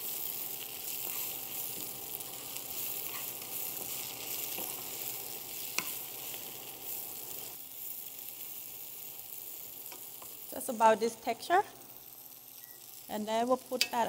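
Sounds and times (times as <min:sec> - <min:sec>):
spinach sizzling in pan: 0:00.0 - 0:14.0.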